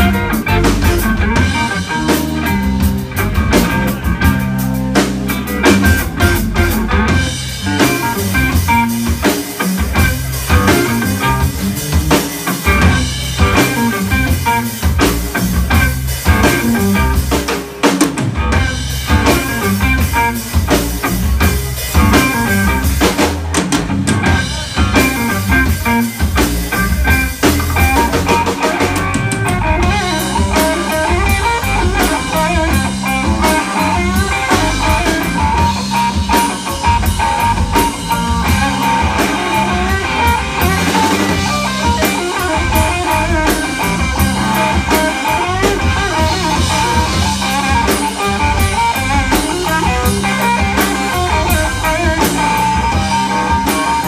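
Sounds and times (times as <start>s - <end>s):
drum kit: 0.0s - 54.0s
electric bass: 0.0s - 54.0s
electric guitar: 0.0s - 54.0s.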